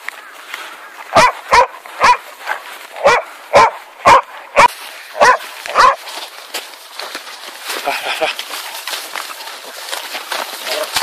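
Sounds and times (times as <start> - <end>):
dogs barking: 1.1 - 6.1.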